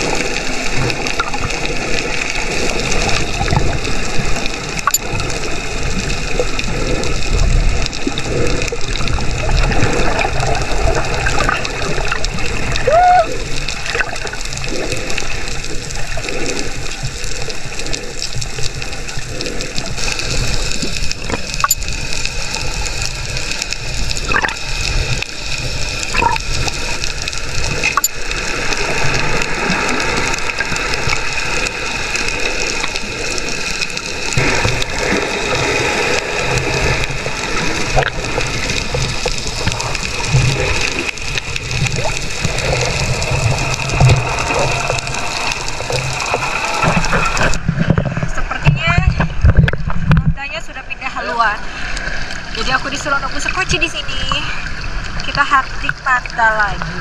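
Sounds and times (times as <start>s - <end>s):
water sloshing and rushing: 0.0s - 57.0s
faint clicks: 16.2s - 25.3s, 26.1s - 29.6s.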